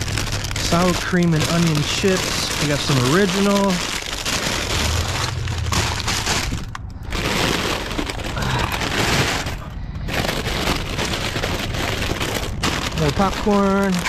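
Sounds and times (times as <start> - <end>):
plastic chip bags crinkling: 0.0 - 14.0.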